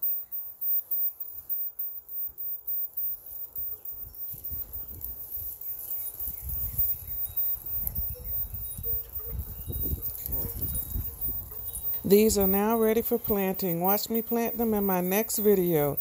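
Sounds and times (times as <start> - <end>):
faint high chirps: 0.0 - 16.0
wind buffeting microphone: 6.2 - 16.0.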